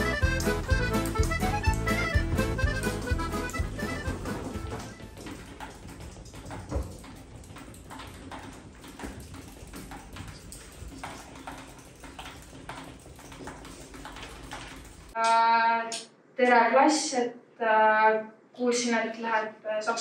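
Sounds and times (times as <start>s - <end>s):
pens and desks tapping: 0.0s - 15.2s.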